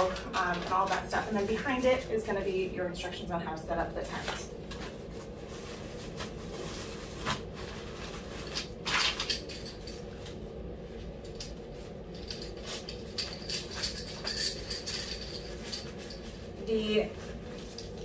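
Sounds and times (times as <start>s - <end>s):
tent fabric rustling: 4.7s - 9.4s
light clinks: 11.3s - 16.9s.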